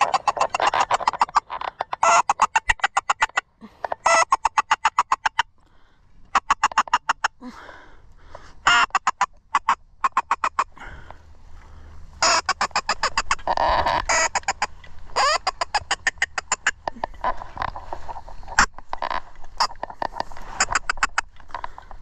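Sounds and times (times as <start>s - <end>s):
duck call quacks: 8.6s - 10.9s, 12.2s - 17.4s.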